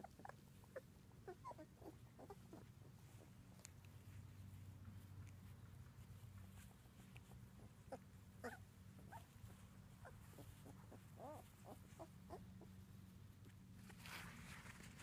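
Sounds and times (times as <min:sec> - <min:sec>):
puppies squeaking: 0:00.0 - 0:03.3, 0:07.6 - 0:12.7
low steady hum: 0:00.0 - 0:15.0
rustle: 0:00.0 - 0:15.0.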